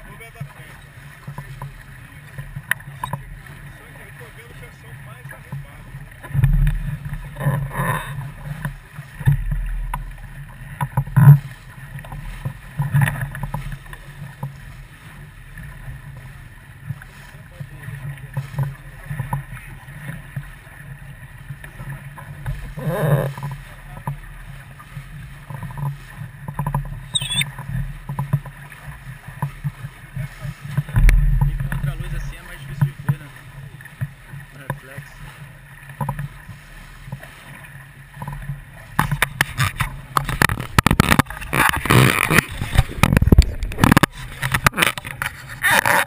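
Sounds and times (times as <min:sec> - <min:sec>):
rushing wind and water: 0:00.0 - 0:46.0
low rumble: 0:30.8 - 0:33.2.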